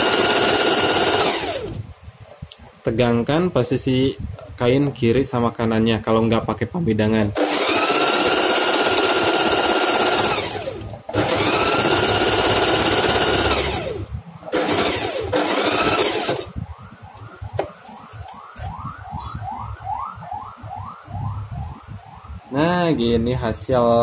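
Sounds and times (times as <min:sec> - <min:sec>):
sewing machine running: 0:00.0 - 0:01.8, 0:07.4 - 0:16.5.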